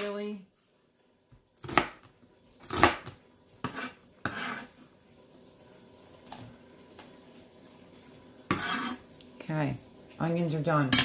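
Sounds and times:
knife chopping on plastic board: 1.6 - 4.6.

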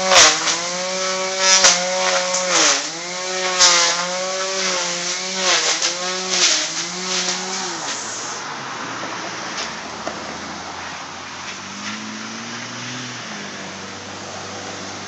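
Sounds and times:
string trimmer engine revving: 0.0 - 8.5, 11.5 - 15.0.

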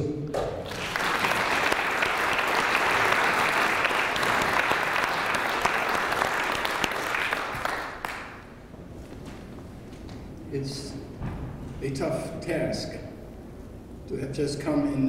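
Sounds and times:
audience applauding: 0.6 - 8.6.

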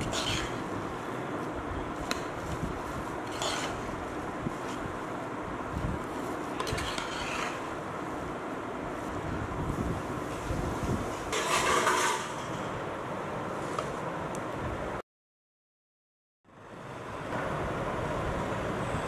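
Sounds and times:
ladle scraping metal pot: 0.0 - 0.8, 3.2 - 4.0, 6.5 - 7.8, 11.3 - 12.7
ladle stirring rice in pot: 0.0 - 5.2, 6.0 - 7.8, 11.3 - 12.5.

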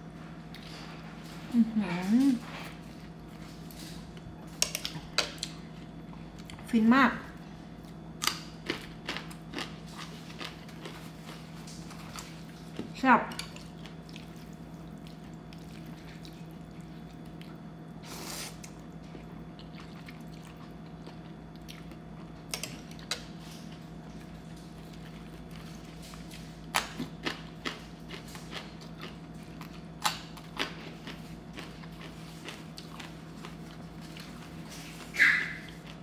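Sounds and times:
steady low hum: 0.0 - 36.0
wet chewing of noodles: 7.4 - 12.8, 13.5 - 36.0.

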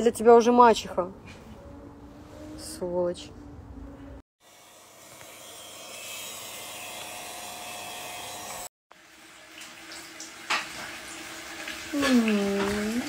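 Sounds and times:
electric nail drill whirring: 4.4 - 8.7.

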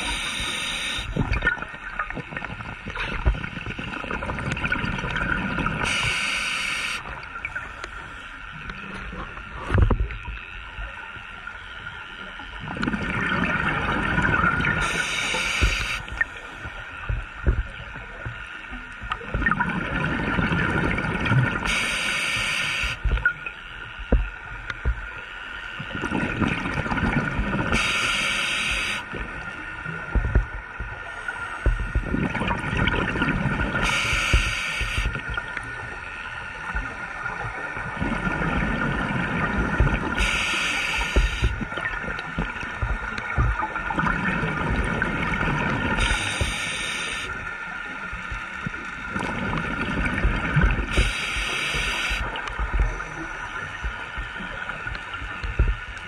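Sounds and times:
regulator air hiss: 0.0 - 1.2, 5.8 - 7.0, 14.8 - 16.2, 21.6 - 23.0, 27.8 - 29.1, 33.8 - 35.1, 40.2 - 41.5, 46.0 - 47.3, 50.9 - 52.3
gurgling exhaled bubbles: 12.6 - 16.0, 19.3 - 21.7, 31.8 - 35.7, 36.8 - 47.4.

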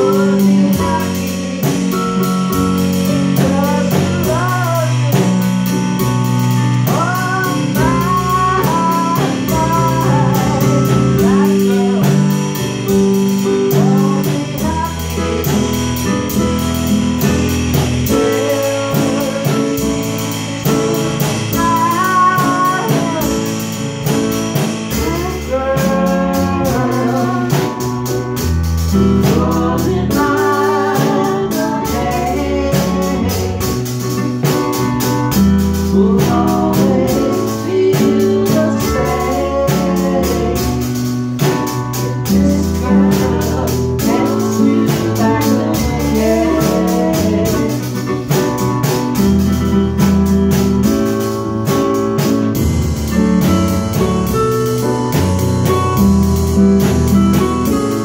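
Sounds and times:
woman singing: 0.0 - 16.5, 17.2 - 23.9, 24.5 - 34.5, 35.8 - 49.0
drum kit cymbals: 0.0 - 58.0
electric keyboards: 0.0 - 58.0.

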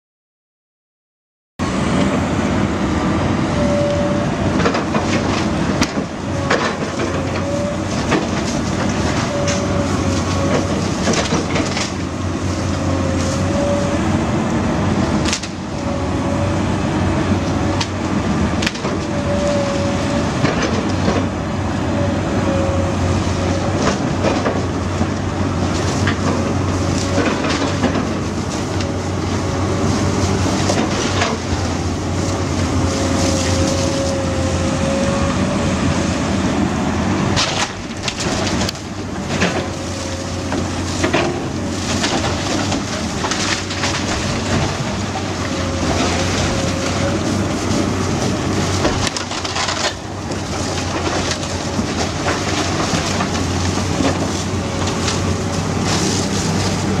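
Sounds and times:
excavator diesel hum: 1.6 - 57.0
wood cracking and crashing: 37.4 - 57.0.

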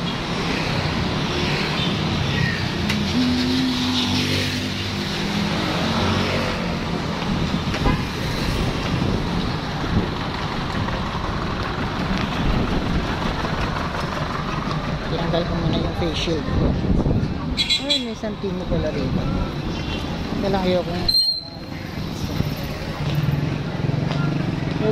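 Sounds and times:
vehicle engines running: 0.0 - 17.5.

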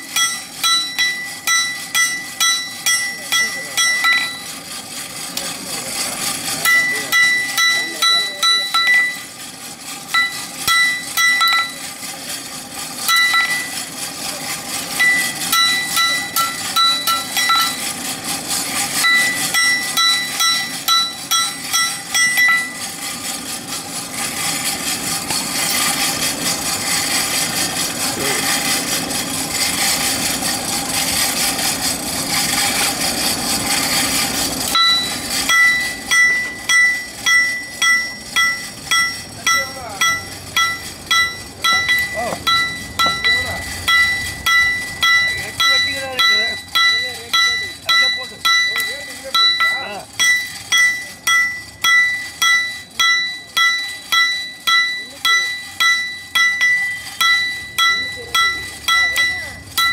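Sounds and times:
hammer ringing on anvil: 0.0 - 5.0, 5.9 - 9.5, 10.1 - 12.2, 13.0 - 18.3, 18.9 - 23.1, 34.7 - 59.9.

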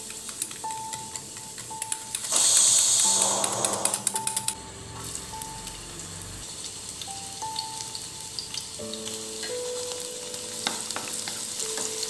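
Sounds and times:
whisk clicking against steel bowl: 0.0 - 4.6
onion sizzling in hot oil: 0.0 - 12.0.

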